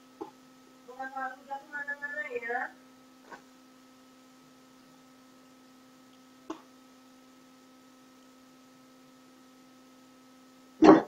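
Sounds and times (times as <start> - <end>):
faint electrical hum: 0.0 - 11.0.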